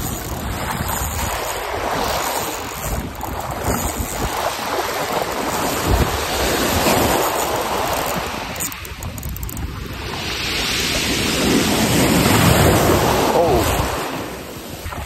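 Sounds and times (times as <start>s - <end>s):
waves lapping on pebbles: 0.0s - 15.0s
wind buffeting microphone: 0.0s - 15.0s.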